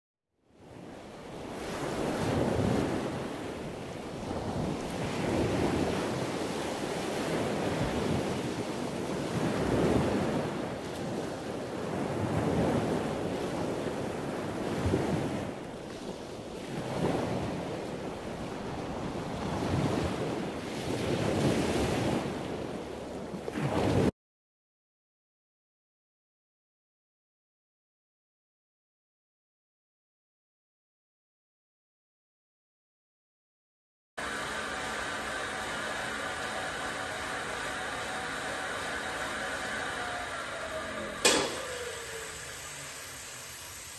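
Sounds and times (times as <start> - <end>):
rowing machine flywheel whirring: 34.2 - 43.9.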